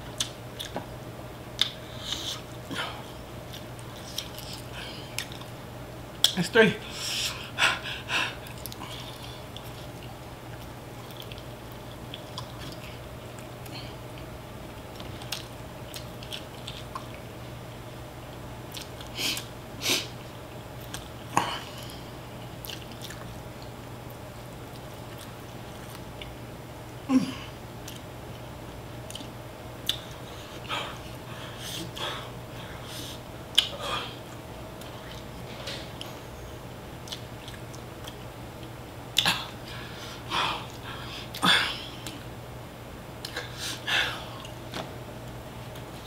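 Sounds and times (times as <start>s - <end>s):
faint steady hum: 0.0s - 46.0s
person chewing and biting: 14.9s - 17.2s, 37.0s - 38.3s.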